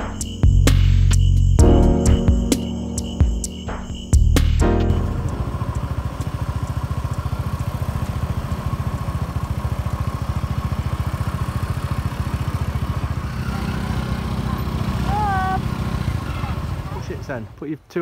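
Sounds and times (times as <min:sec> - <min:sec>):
faint engine whine: 0:02.6 - 0:17.6
scooter engines puttering: 0:04.6 - 0:17.9.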